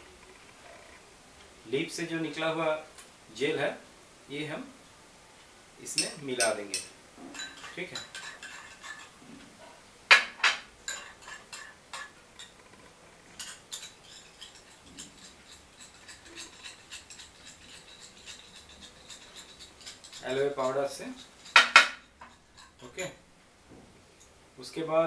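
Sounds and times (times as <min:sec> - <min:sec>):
spoon clinking in glass bowl: 0:13.4 - 0:23.1.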